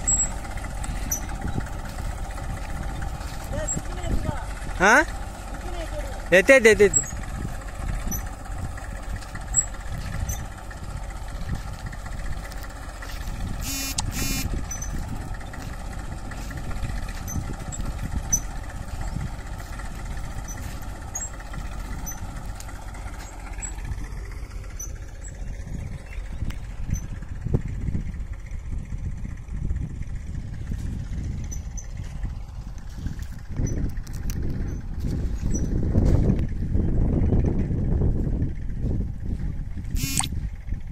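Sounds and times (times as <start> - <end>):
tractor diesel engine running: 0.0 - 40.9
brief high-pitched sounds: 40.0 - 40.3.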